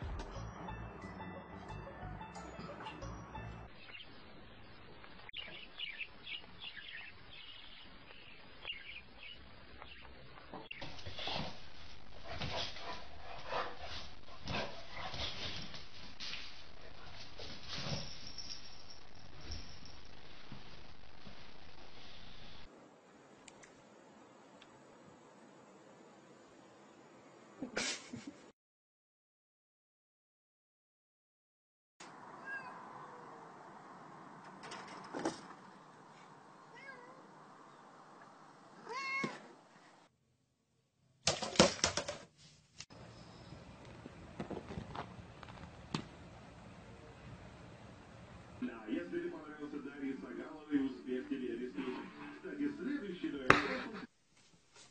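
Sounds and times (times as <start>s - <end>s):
cat meowing: 32.4s - 33.5s, 36.7s - 37.3s, 38.8s - 39.5s.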